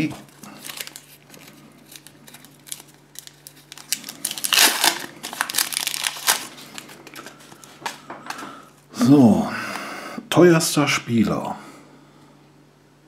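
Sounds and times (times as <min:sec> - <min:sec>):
wrapper crinkling: 0:00.0 - 0:08.0.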